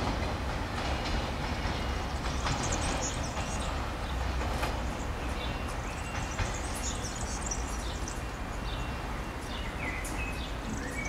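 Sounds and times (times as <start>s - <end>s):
diesel railcar rumble: 0.0s - 11.0s
small birds chirping: 0.8s - 11.0s.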